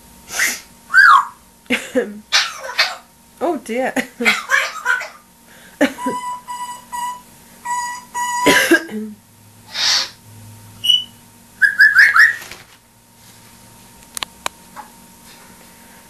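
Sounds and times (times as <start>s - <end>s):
parrot hissing: 0.3s - 1.3s, 9.7s - 10.2s
parrot whistling: 0.4s - 1.4s, 6.0s - 8.6s, 9.7s - 10.2s, 10.8s - 12.4s
parrot chirping: 0.9s - 1.4s, 2.3s - 3.1s, 4.2s - 5.2s, 6.0s - 8.5s, 9.8s - 10.2s, 10.8s - 12.4s.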